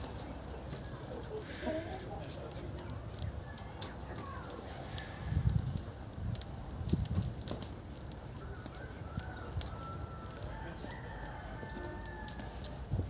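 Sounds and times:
straw fire crackling: 0.0 - 13.0
rooster crowing: 8.4 - 12.8.

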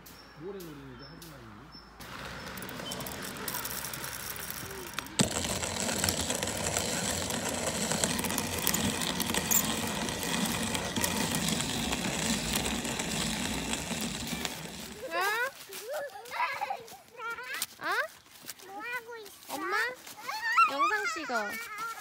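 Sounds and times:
hand coffee mill grinding: 2.0 - 15.8.

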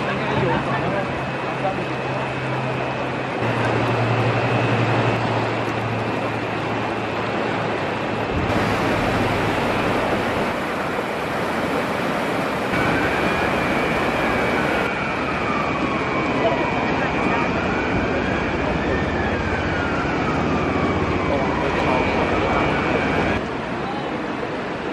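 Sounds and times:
river rushing: 0.0 - 16.0
low hum: 3.3 - 14.9.

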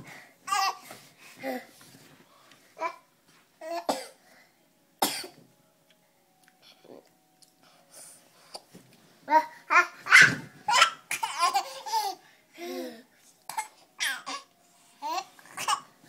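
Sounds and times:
baby laughing and squealing: 9.7 - 12.2.

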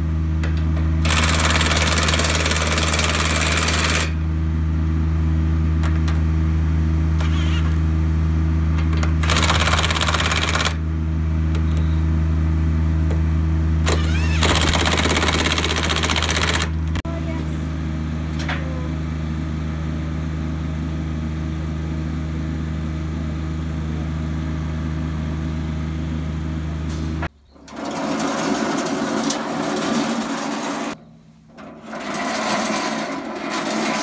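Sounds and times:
hydraulic pump humming: 7.1 - 8.0, 8.6 - 20.2.

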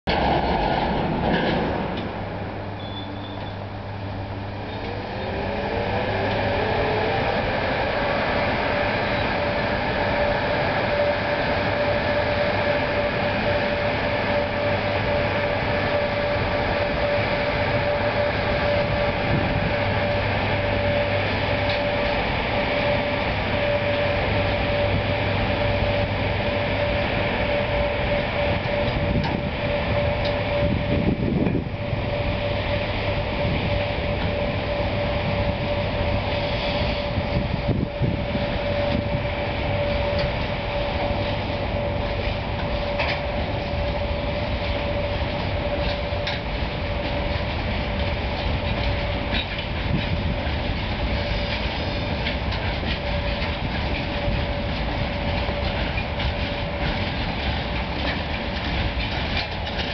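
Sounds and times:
electric locomotive hum: 0.0 - 59.9
rising electric whine: 2.6 - 49.4.

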